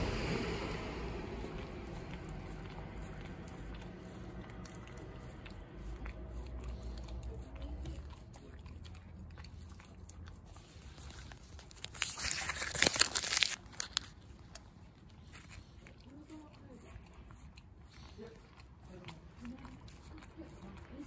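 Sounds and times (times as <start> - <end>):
low rumble: 0.0 - 3.5
dog licking ice cream: 0.0 - 21.0
paper wrapper crinkling: 11.0 - 14.5.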